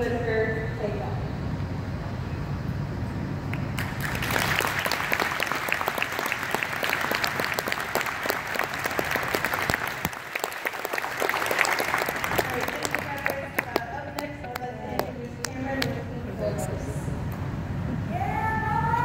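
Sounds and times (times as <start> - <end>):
audience applauding: 3.5 - 15.1.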